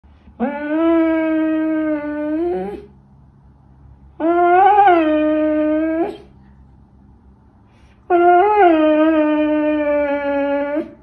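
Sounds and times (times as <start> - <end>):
dog howling: 0.4 - 2.9, 4.2 - 6.3, 8.1 - 11.0.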